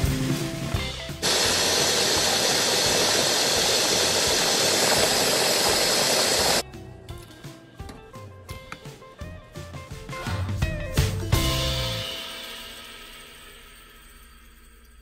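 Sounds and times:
food processor whirring: 1.2 - 6.6
faint guitar music: 6.6 - 12.1.

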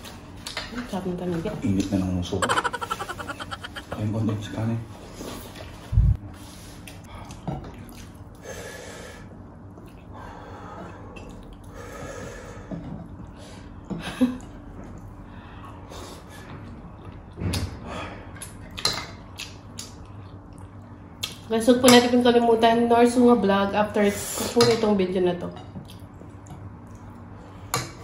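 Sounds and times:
breathing: 8.4 - 9.4, 10.1 - 13.8, 15.2 - 16.6, 17.8 - 18.4.

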